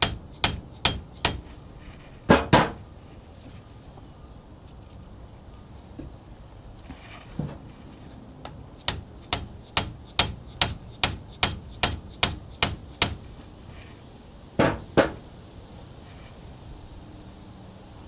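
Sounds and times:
hammer blows on a pipe wrench: 0.0s - 1.4s, 8.4s - 13.2s.

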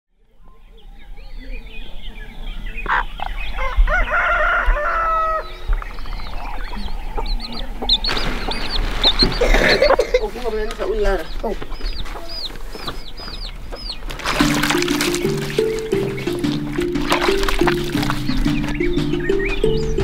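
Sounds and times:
chickens clucking: 1.4s - 20.0s
rooster crowing: 3.6s - 5.7s
plastic bag rustling: 8.1s - 10.8s, 14.0s - 18.9s.

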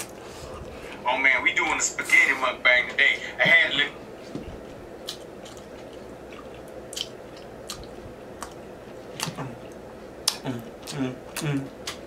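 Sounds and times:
man chewing food: 0.0s - 1.0s, 4.2s - 12.0s
room fan: 0.0s - 12.0s.

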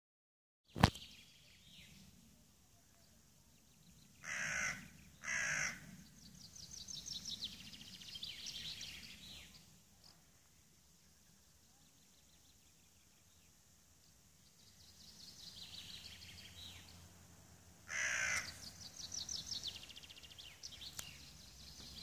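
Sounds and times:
songbird trill: 0.7s - 22.0s
crow cawing: 4.2s - 5.9s, 17.9s - 18.6s.

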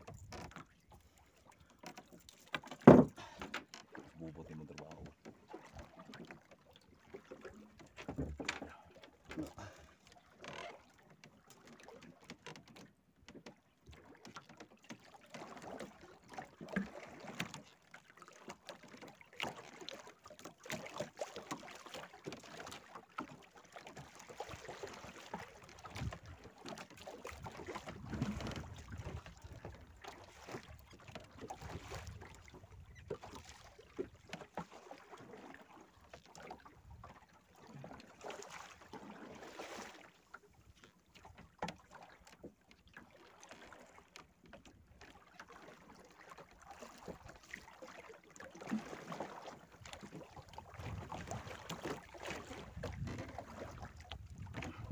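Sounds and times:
water lapping against boat hull: 0.0s - 54.9s
wind on microphone: 27.9s - 29.1s, 54.2s - 54.9s.

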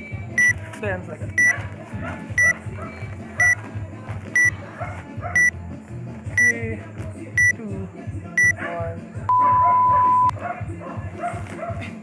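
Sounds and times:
long low beep: 9.3s - 10.3s
short high beeps: 9.3s - 10.3s.

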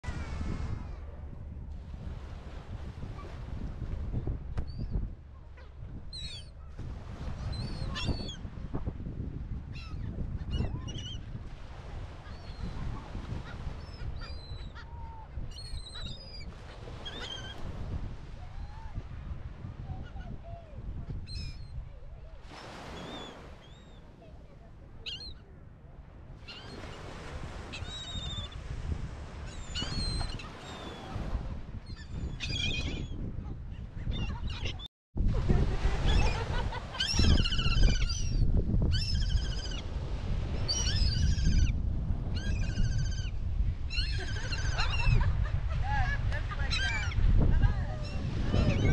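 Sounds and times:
wind rumbling on microphone: 0.0s - 48.9s
gulls squawking: 13.4s - 17.6s, 34.0s - 34.9s, 36.0s - 39.8s, 43.9s - 48.9s
gulls calling: 36.0s - 39.9s.

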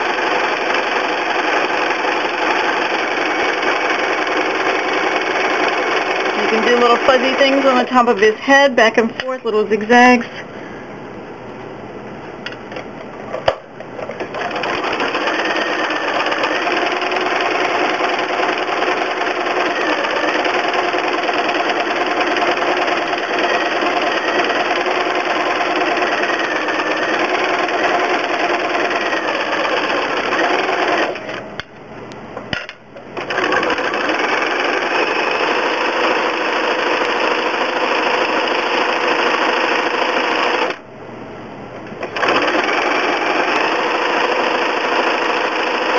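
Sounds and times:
sewing machine stitching: 0.0s - 7.8s, 14.1s - 31.4s, 33.2s - 40.8s, 42.0s - 45.9s.

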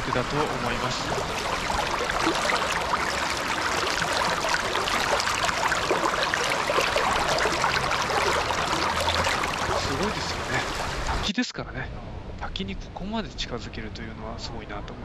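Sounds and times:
stream water babbling over rock: 0.0s - 11.3s.

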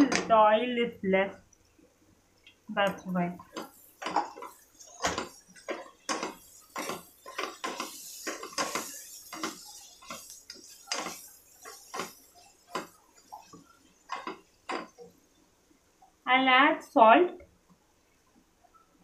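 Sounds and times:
spatula scraping a pan: 3.4s - 15.2s.

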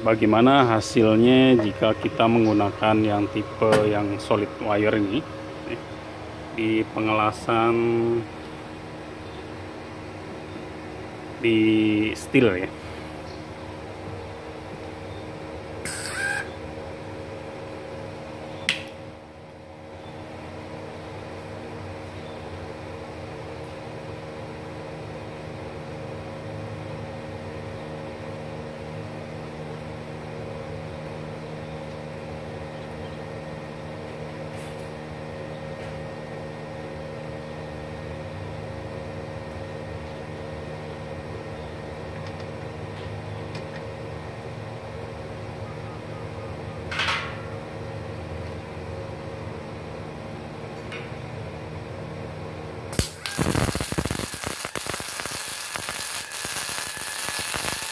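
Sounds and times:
welder machine hum: 0.0s - 19.3s, 46.9s - 57.9s
welding arc crackling: 15.9s - 16.5s, 52.9s - 57.9s.

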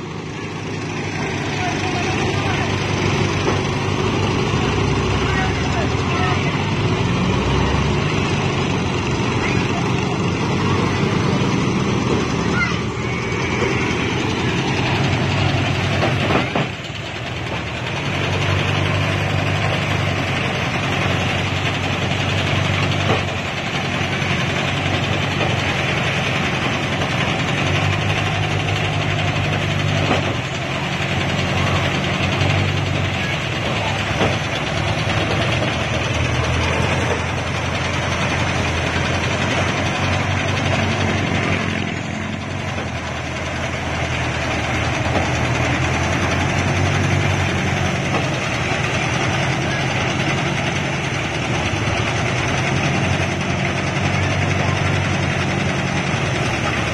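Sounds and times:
threshing drum rattling: 0.0s - 56.9s.

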